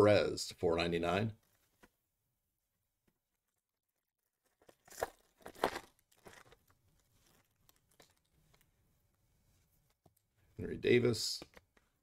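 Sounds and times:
foil crinkling: 0:04.4 - 0:08.6
cards rustling: 0:04.4 - 0:08.7
foil wrapper ripping: 0:04.6 - 0:08.3.

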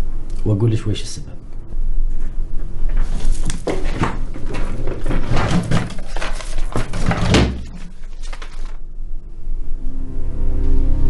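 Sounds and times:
knocks and clatter on desk: 0:02.9 - 0:07.8
paper rustling: 0:02.9 - 0:08.8.

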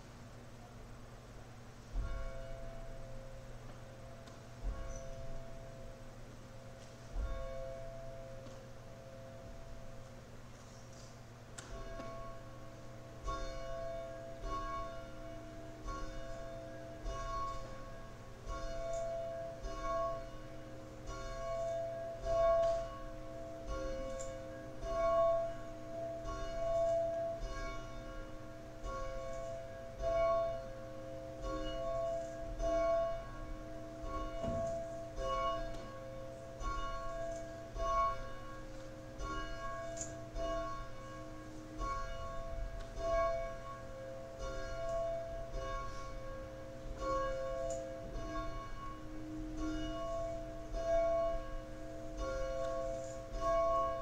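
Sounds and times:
church bells ringing: 0:00.0 - 0:54.0.

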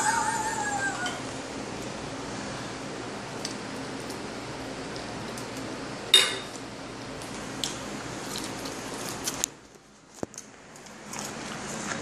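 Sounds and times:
metal spoon clinking on dish: 0:06.2 - 0:06.5.

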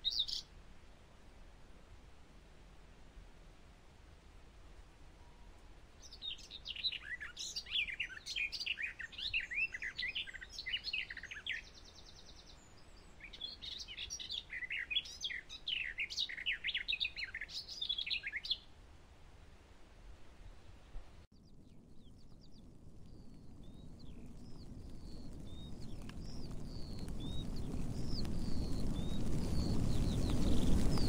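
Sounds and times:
skylark singing: 0:06.1 - 0:11.7.

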